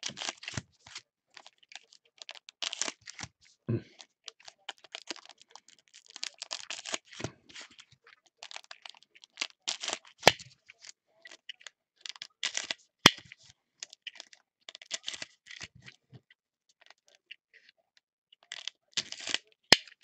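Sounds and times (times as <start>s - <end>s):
wrappers crinkling: 0.0s - 3.2s, 4.3s - 10.4s.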